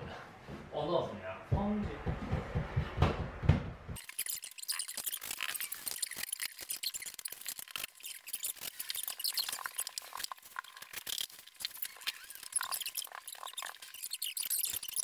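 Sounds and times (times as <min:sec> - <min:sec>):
sped-up clicks and squeaks: 0:04.0 - 0:15.0.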